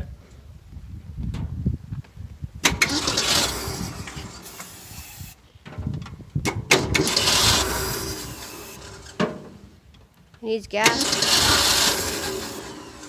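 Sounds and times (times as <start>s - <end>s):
truck engine cranking and catching: 2.6s - 13.0s.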